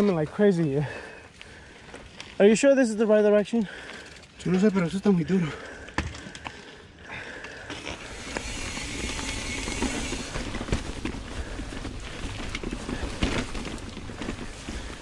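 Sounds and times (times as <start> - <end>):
bike rattling and clicking: 3.4 - 15.0.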